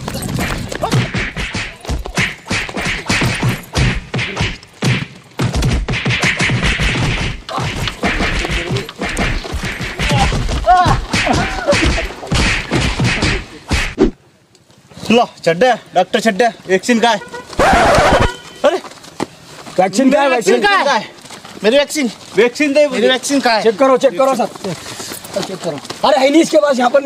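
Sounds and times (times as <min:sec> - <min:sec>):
whacks thuds and crashes: 0:00.0 - 0:14.2
people shouting: 0:07.4 - 0:13.6, 0:17.5 - 0:18.8.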